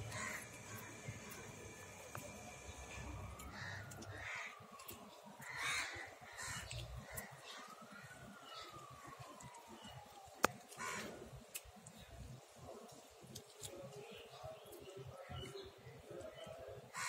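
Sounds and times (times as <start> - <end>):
crows cawing: 0.0 - 0.9, 3.5 - 4.6, 5.4 - 7.3, 10.8 - 11.1.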